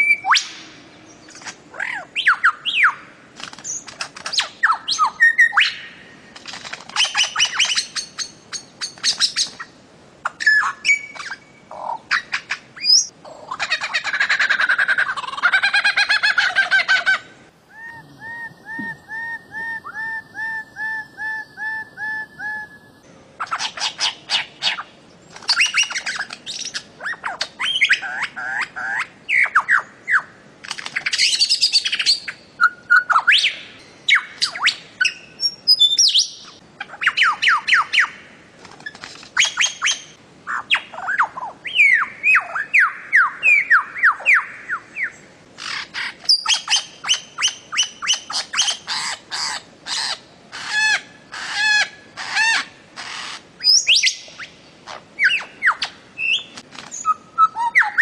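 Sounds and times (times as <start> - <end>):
bird harsh calls: 33.0 - 58.0.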